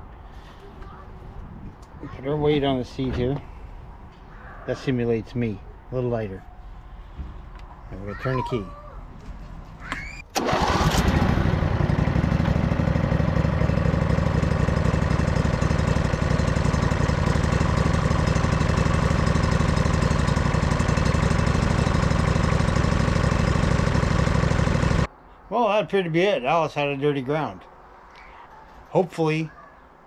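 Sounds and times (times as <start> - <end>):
lawn tractor engine starting: 10.2 - 25.1.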